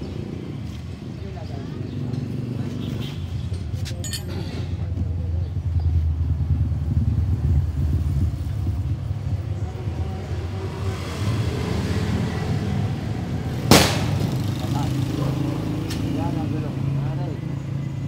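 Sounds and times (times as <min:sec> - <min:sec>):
vehicle engine rumbling: 0:00.0 - 0:11.4.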